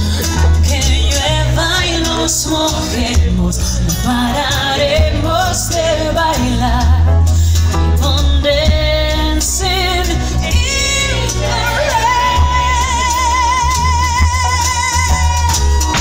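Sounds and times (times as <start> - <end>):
acoustic and electric guitars: 0.0 - 16.0
drums: 0.0 - 16.0
heavy bass: 0.0 - 16.0
woman singing lead: 0.0 - 16.0.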